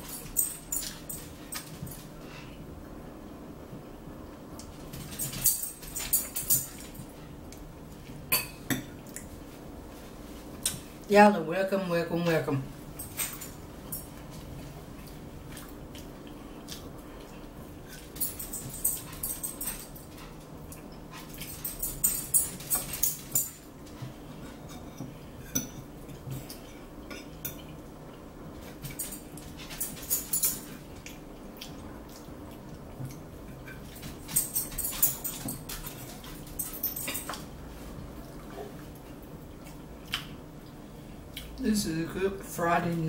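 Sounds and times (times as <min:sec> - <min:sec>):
forks clinking on plates: 0:00.0 - 0:02.0, 0:05.0 - 0:07.1, 0:17.9 - 0:20.3, 0:21.2 - 0:23.7, 0:28.6 - 0:30.8, 0:33.1 - 0:37.5.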